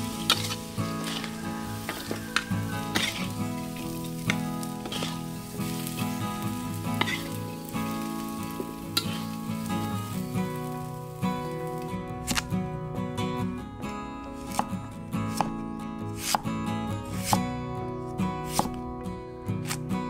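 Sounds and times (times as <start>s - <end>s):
metal spatula scraping wok: 0.0s - 10.3s
rice sizzling in oil: 0.0s - 12.5s.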